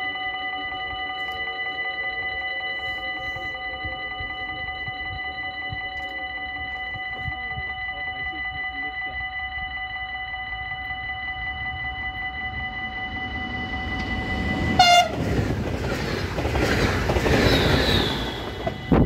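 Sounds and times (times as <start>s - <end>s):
pulsing ringing warning signal: 0.0s - 19.0s
train rumble and wheel clatter: 10.6s - 19.0s
train horn blast: 10.8s - 16.2s.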